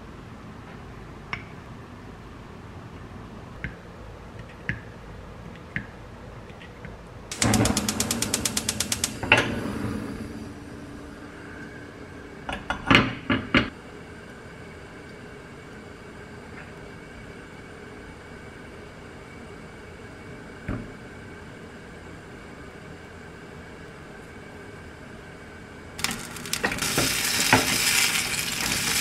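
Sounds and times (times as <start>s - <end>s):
sharp knocks: 7.3s - 9.5s
gas stove igniter clicking: 7.3s - 10.5s
burner flame whoosh and hiss: 7.3s - 11.7s, 26.0s - 29.0s.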